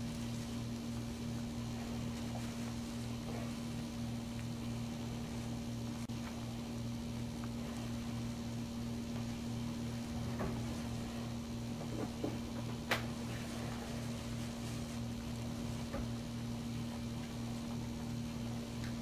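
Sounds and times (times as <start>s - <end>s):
steady mechanical hum: 0.0s - 19.0s.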